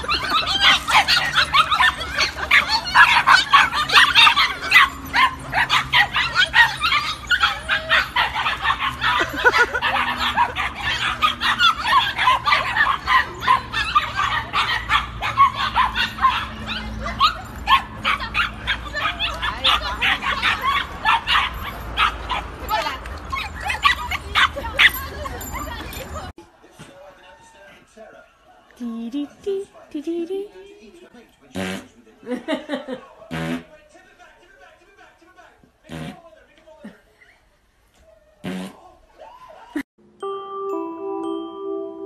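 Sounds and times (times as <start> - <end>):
puppies yipping and barking: 0.0 - 26.4.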